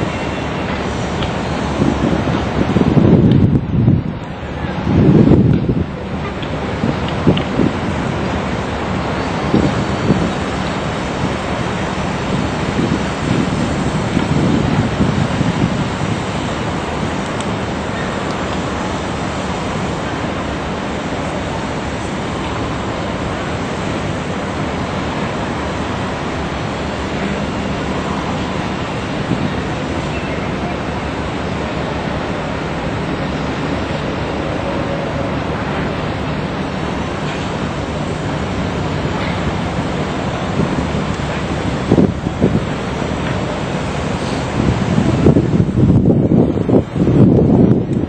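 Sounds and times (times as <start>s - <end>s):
rushing water: 0.0s - 48.0s
wind on microphone: 0.0s - 48.0s.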